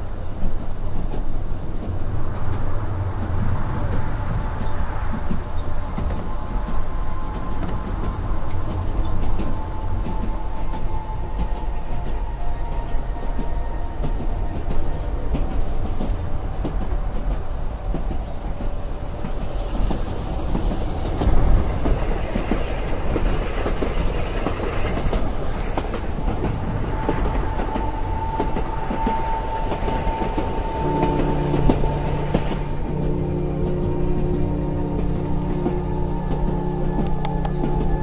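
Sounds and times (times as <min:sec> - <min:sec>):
steady low tones: 0:00.0 - 0:38.0
train rumble and wheel clatter: 0:00.0 - 0:38.0
steady high tone: 0:06.2 - 0:16.1, 0:25.7 - 0:38.0.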